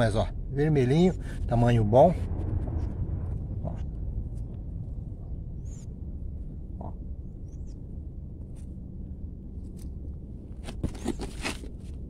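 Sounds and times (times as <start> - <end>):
steady low rumble: 0.0 - 12.0
fingers scraping soil: 10.6 - 12.0.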